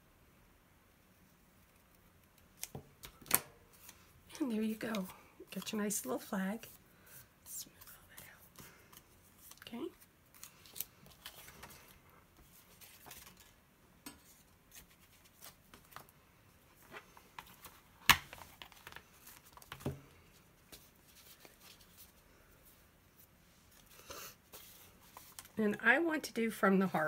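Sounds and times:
paper and plastic rustling: 0:03.8 - 0:13.6, 0:23.6 - 0:25.6.

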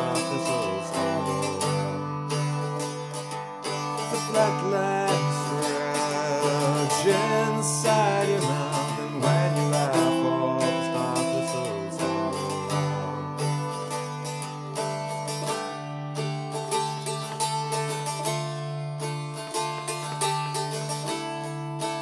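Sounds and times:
man singing: 0:00.0 - 0:02.8, 0:03.6 - 0:14.1
bouzouki chords: 0:00.0 - 0:22.0.

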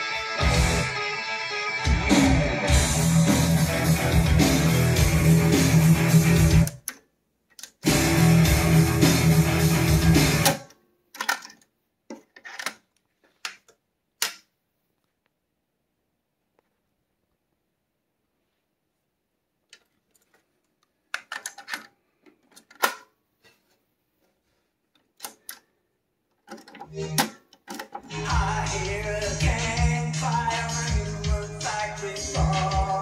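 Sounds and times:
guitar music from cassette deck: 0:00.0 - 0:06.8, 0:07.8 - 0:10.6.

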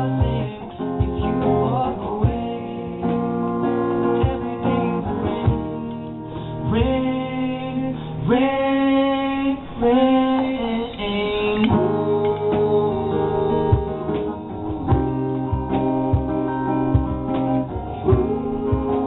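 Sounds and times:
acoustic guitar: 0:00.0 - 0:19.0
person singing: 0:00.0 - 0:19.0.

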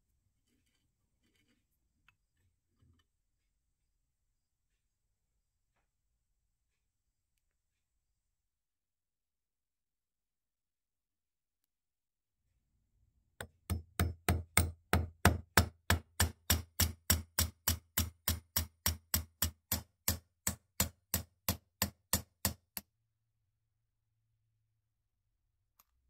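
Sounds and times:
hammer tapping metal punch: 0:13.4 - 0:22.8.

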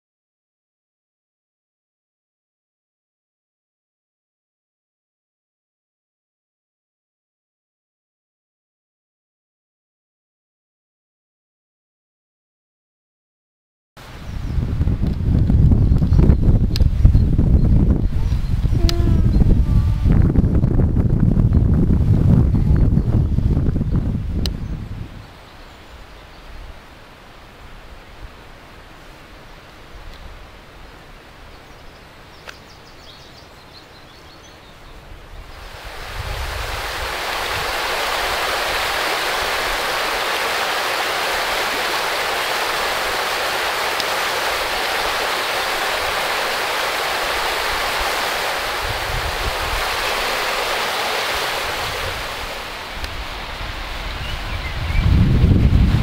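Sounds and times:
river water rushing over stones: 0:35.4 - 0:54.8.

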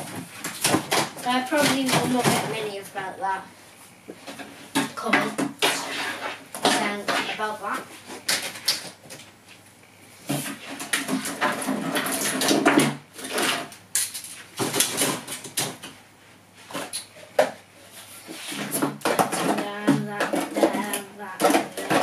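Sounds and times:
plastic toys knocking and rattling: 0:00.0 - 0:02.8, 0:04.3 - 0:09.3, 0:10.3 - 0:16.0, 0:18.4 - 0:22.0.

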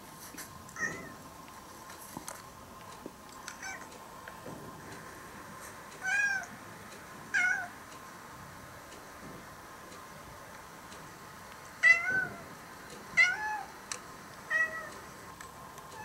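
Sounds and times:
cat meowing: 0:00.8 - 0:01.2, 0:11.8 - 0:12.5, 0:13.2 - 0:13.7, 0:14.5 - 0:15.0.

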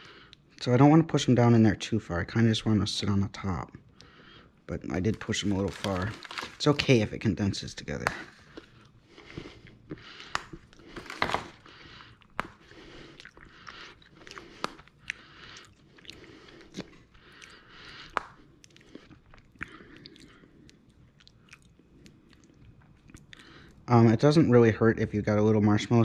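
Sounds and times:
wrappers rustling: 0:04.8 - 0:07.2, 0:10.4 - 0:11.7
chocolate bars snapping: 0:05.1 - 0:07.0, 0:07.9 - 0:08.7, 0:10.2 - 0:15.2, 0:16.7 - 0:18.8.

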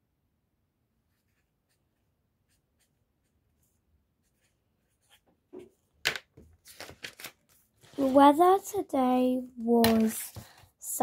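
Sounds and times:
pen scratching on paper: 0:01.1 - 0:05.3.

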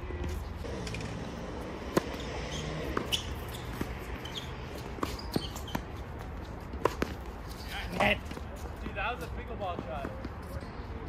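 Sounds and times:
racket striking tennis ball: 0:00.2 - 0:07.4
ball bouncing on hard court: 0:01.8 - 0:07.3.

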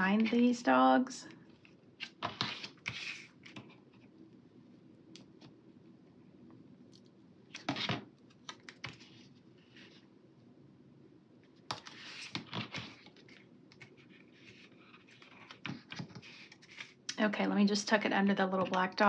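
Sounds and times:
paper rustling: 0:11.7 - 0:17.1.

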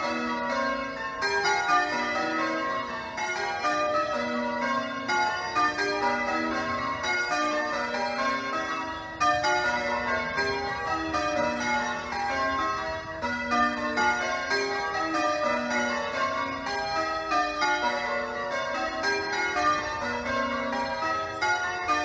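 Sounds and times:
church bells change ringing: 0:00.0 - 0:22.0.

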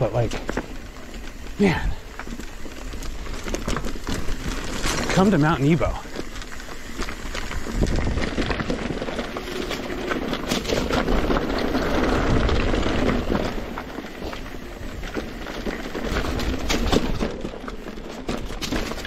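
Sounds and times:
bike knocking and rattling: 0:00.0 - 0:19.0
tyres crunching over dirt and stones: 0:00.0 - 0:19.0
wind rumble on microphone: 0:07.0 - 0:17.3.

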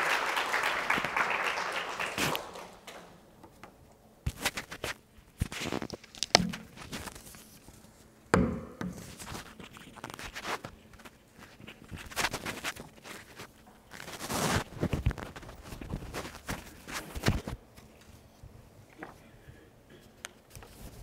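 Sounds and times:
paper pages turning: 0:04.3 - 0:08.0, 0:09.0 - 0:17.6.

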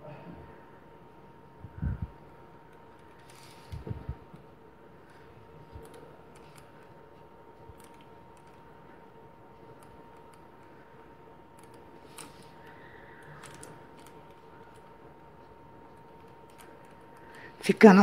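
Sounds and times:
faint steady high whine: 0:00.0 - 0:18.0
hands handling cord clicks and rustles: 0:02.6 - 0:04.5.

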